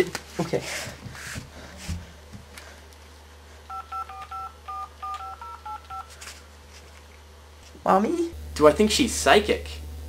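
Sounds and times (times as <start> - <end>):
two-tone keypad beeps: 3.7 - 6.1.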